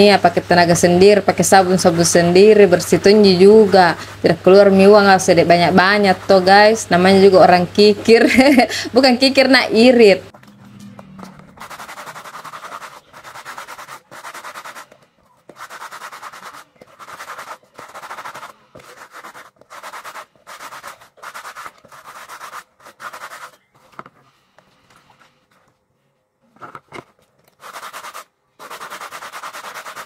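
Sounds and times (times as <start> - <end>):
brush scrubbing a shoe: 11.5 - 23.6, 27.6 - 30.0.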